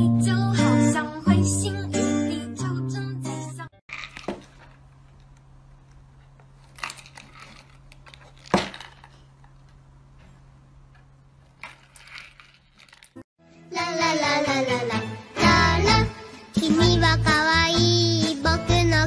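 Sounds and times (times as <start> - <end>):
box thud on wood: 8.4 - 9.1.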